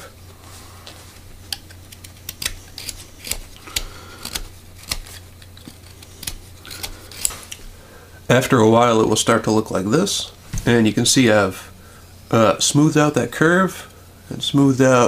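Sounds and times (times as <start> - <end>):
low steady hum: 0.0 - 15.0
knife cutting wood: 1.4 - 7.7.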